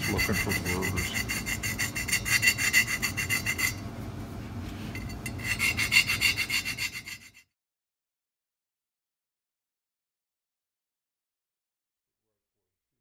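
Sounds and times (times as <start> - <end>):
abrasive stone rubbing metal: 0.0 - 3.9, 4.9 - 7.5.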